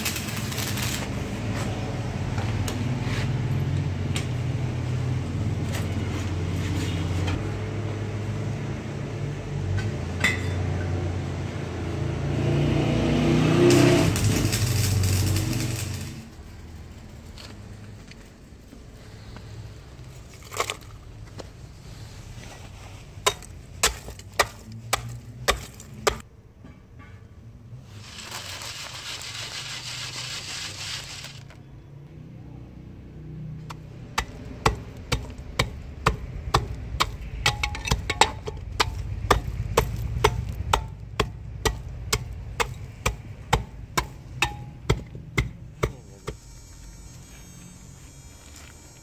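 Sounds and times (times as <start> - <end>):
metal rod pounding charcoal in can: 23.2 - 26.2, 33.7 - 46.8.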